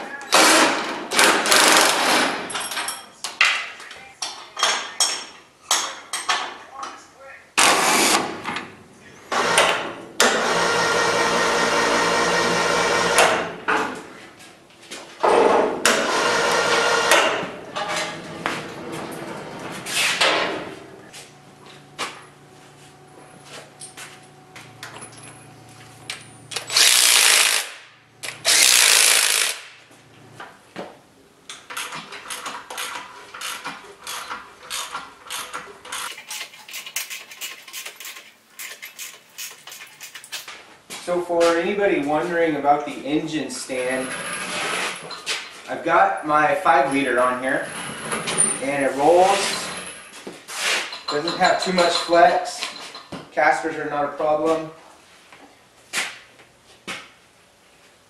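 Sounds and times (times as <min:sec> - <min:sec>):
impact driver hammering: 0:07.6 - 0:08.5
wrench clicking: 0:31.7 - 0:40.4.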